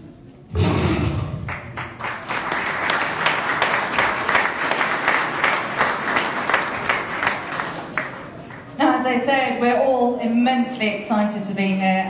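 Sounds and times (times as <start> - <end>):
audience applauding: 1.4 - 8.8.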